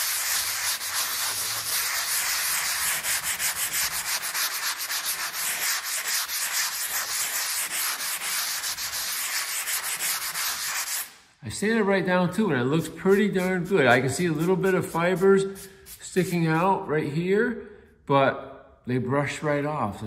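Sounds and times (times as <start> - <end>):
sanding sponge on drywall: 0.0 - 11.2, 12.8 - 16.6.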